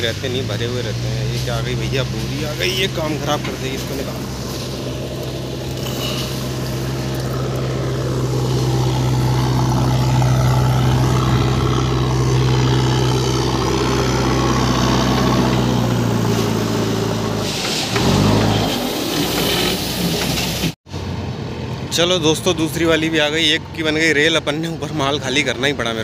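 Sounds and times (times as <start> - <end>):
diesel engine running: 0.0 - 20.8.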